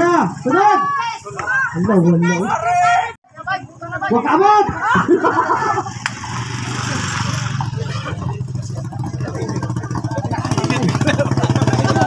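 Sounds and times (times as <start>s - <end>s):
motorcycle engine running: 5.8s - 12.0s.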